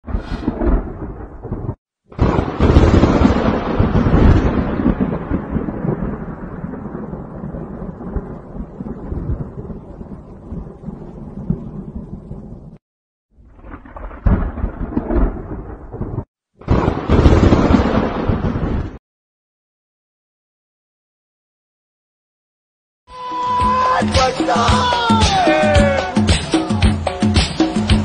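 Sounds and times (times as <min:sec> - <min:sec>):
loud thunderclap: 0:00.0 - 0:12.8, 0:13.4 - 0:19.0
thunder rumbling: 0:00.0 - 0:12.8, 0:13.4 - 0:19.0.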